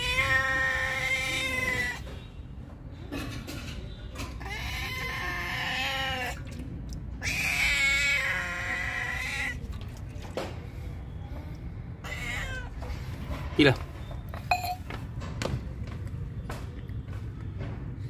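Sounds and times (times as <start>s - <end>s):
cat meowing: 0.0s - 2.0s, 4.4s - 6.5s, 7.2s - 9.6s, 12.0s - 12.8s.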